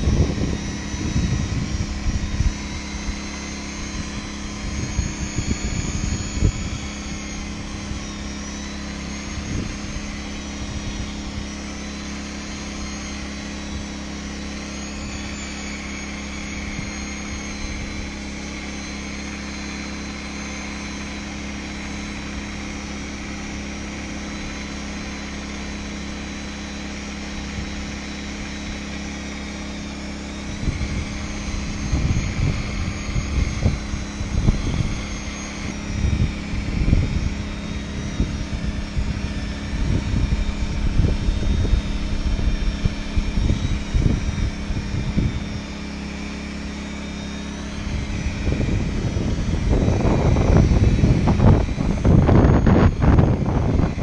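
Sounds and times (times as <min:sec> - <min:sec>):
electric polisher whining: 0:00.0 - 0:54.0.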